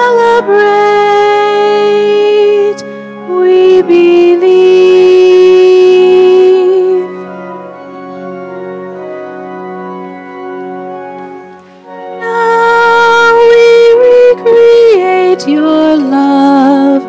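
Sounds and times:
cantor singing hymn: 0:00.0 - 0:07.8, 0:10.5 - 0:17.0
sustained organ: 0:00.0 - 0:17.0.

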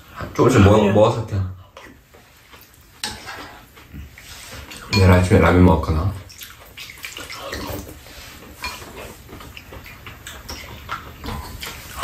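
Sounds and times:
chewing and lip sounds: 0:06.3 - 0:12.0.

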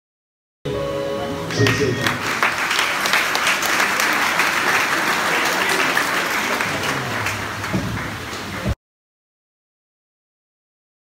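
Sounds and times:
crowd applauding: 0:01.5 - 0:08.8.

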